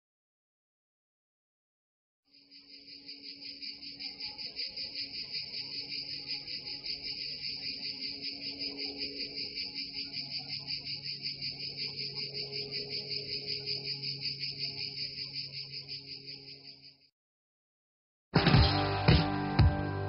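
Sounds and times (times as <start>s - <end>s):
crickets trilling: 2.3s - 17.1s.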